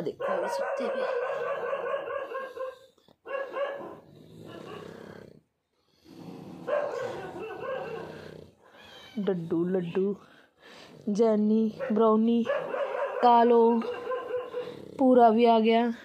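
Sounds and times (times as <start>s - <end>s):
dog vocalising: 0.0s - 5.2s, 6.6s - 10.1s, 11.6s - 15.1s.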